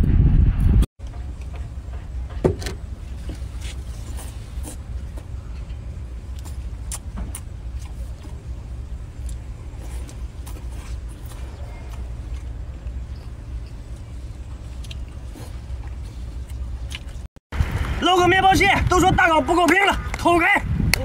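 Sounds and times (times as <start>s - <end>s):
low rumble: 0.0s - 21.0s
wet mouth eating sounds: 3.2s - 5.3s, 6.2s - 17.3s.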